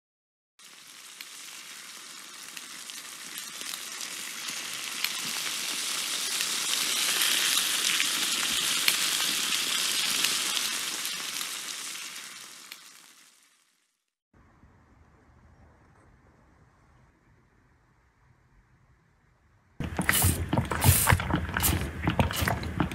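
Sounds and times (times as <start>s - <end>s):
crackling sizzling hiss: 0.6s - 14.2s.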